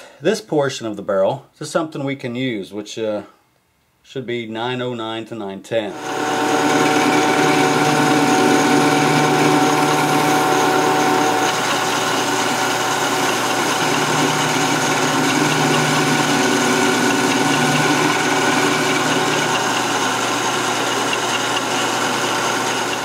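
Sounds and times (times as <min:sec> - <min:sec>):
metal lathe drone: 0:05.9 - 0:23.0.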